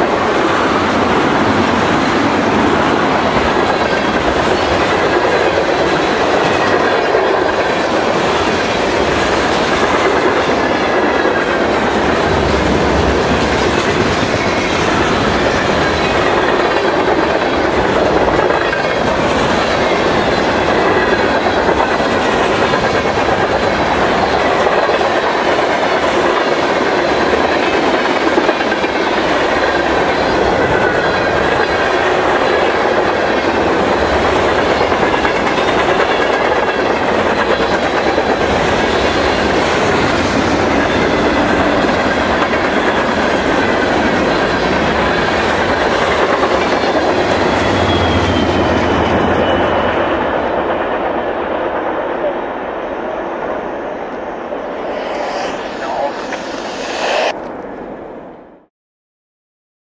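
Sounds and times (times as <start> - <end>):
freight train wheels clacking: 0.0 - 51.4.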